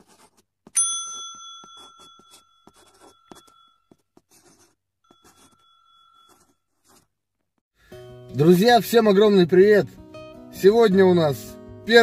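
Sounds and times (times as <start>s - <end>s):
marker scribbling: 0.0s - 0.7s, 1.6s - 7.2s
ringing chime tone: 0.8s - 3.8s, 5.1s - 6.6s.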